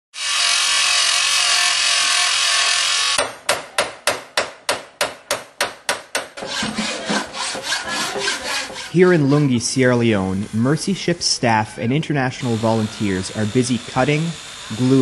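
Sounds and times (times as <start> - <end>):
power tool grinding: 0.1 - 3.2, 6.4 - 15.0
hand-filing strokes: 6.2 - 11.2.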